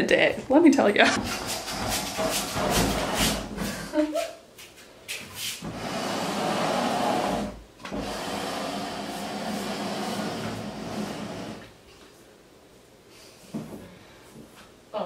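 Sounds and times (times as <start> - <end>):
desk scraping across floor: 1.2 - 3.6, 5.6 - 11.7
desk knocking and clattering: 1.2 - 3.7.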